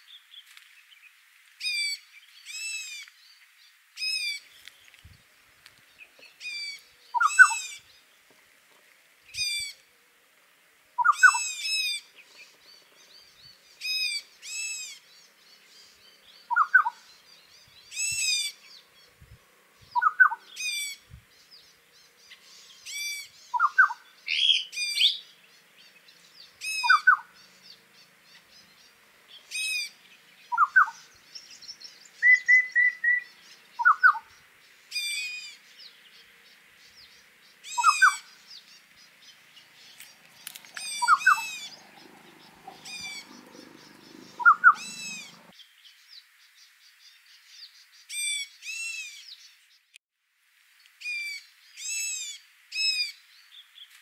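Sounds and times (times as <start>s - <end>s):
wild birds calling: 1.6s - 8.3s, 11.0s - 45.6s.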